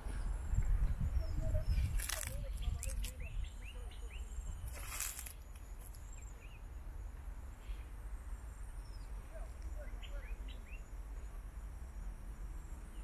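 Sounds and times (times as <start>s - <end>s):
wind rumble on microphone: 0.0s - 6.2s
bird chirps: 0.1s - 11.4s.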